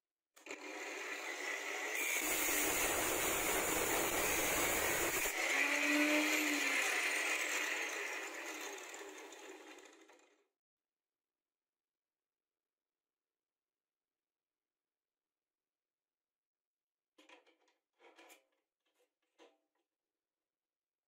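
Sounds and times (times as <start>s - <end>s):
angle grinder running: 0.4s - 10.3s
disc grinding steel: 0.4s - 10.3s.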